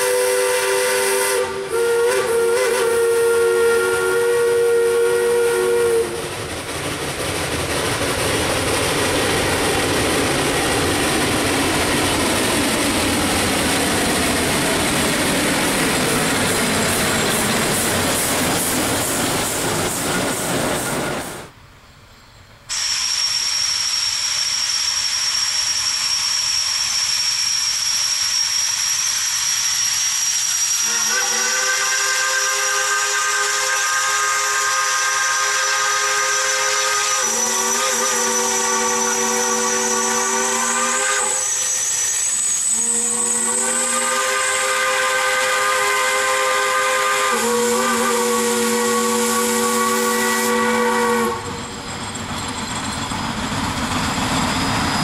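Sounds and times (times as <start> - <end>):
steam locomotive chime whistle: 0.0 - 6.4, 22.7 - 53.4
steady loud hiss: 5.9 - 55.0.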